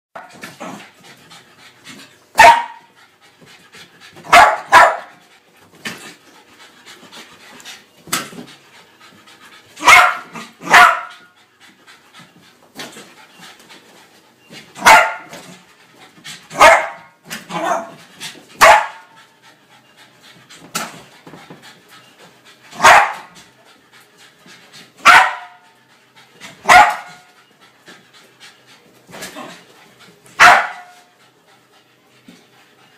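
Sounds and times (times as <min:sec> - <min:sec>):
dog panting: 0:00.4 - 0:32.9
dog barking: 0:02.4 - 0:02.8, 0:04.3 - 0:05.2, 0:09.8 - 0:11.2, 0:14.8 - 0:15.3, 0:16.6 - 0:17.9, 0:18.6 - 0:19.1, 0:22.8 - 0:23.3, 0:25.0 - 0:25.6, 0:26.7 - 0:27.3, 0:30.4 - 0:31.0.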